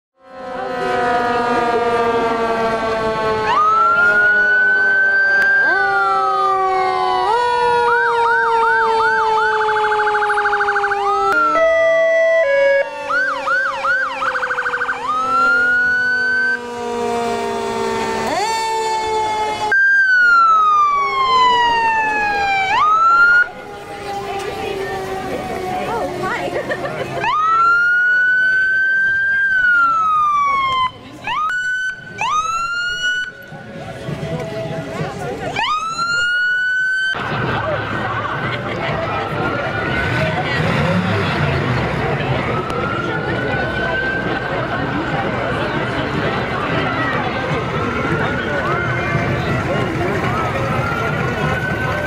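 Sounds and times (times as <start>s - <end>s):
low horn-like tones: 0.2s - 19.8s
emergency sirens wailing: 0.2s - 52.0s.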